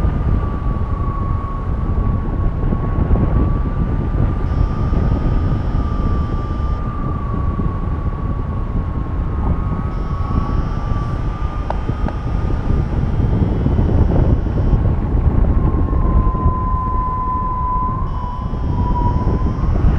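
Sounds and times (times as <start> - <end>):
airflow buffeting microphone: 0.0 - 19.9
steady high tone: 4.2 - 7.3, 9.6 - 19.9.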